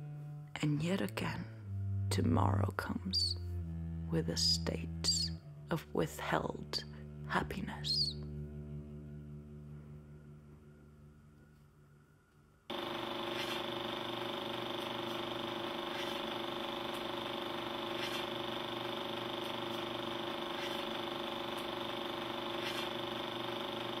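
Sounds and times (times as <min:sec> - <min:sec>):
mechanical whirring hum: 0:08.3 - 0:24.0.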